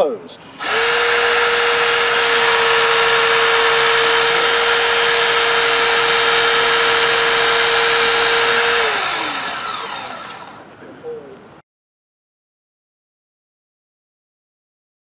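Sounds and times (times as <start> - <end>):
hydraulic motor whine: 0.6 - 10.7.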